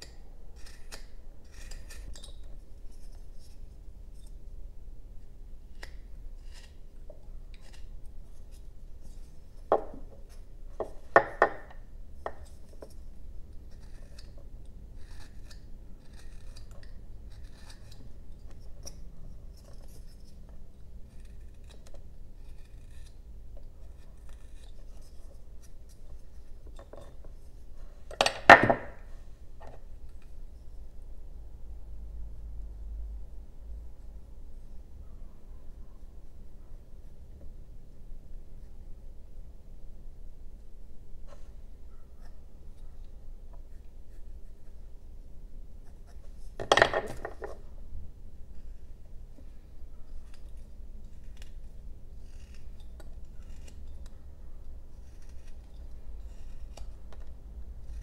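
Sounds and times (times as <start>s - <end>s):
knife carving wood: 0.0s - 4.6s, 5.2s - 30.4s, 41.4s - 47.8s, 48.4s - 58.0s.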